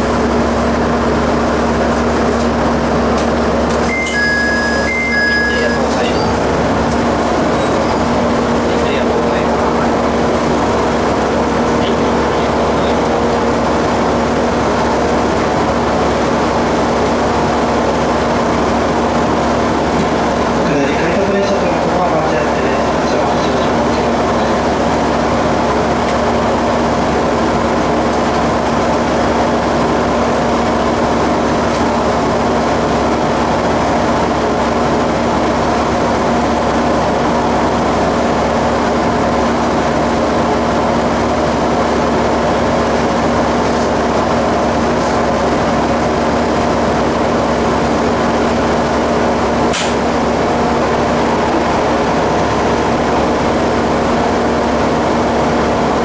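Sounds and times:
diesel engine idling: 0.0 - 56.0
sharp click: 49.7 - 50.0.

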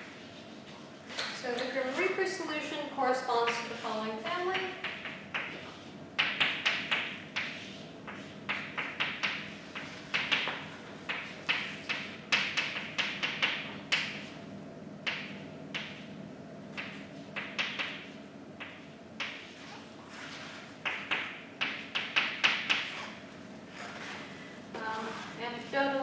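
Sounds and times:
chalk writing on blackboard: 7.4 - 12.0, 19.2 - 23.2.

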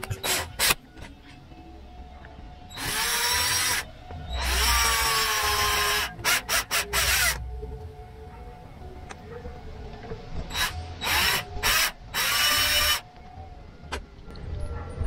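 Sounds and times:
cordless drill boring plastic: 2.8 - 7.4, 10.5 - 13.0.

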